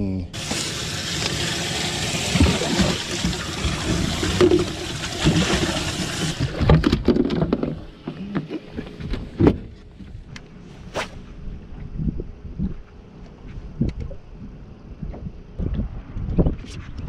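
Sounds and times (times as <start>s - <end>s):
water splashing and rushing: 0.4s - 6.8s.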